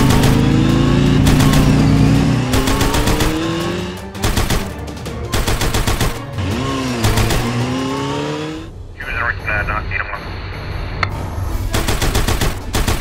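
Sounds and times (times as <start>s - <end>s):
machine-gun-like rattling: 1.2s - 1.8s, 2.5s - 6.3s, 7.0s - 7.6s, 11.8s - 13.0s.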